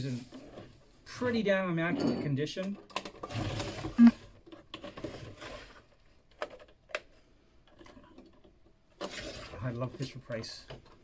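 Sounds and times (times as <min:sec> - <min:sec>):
plastic toy scraping on table: 0:03.2 - 0:05.9, 0:09.0 - 0:10.0.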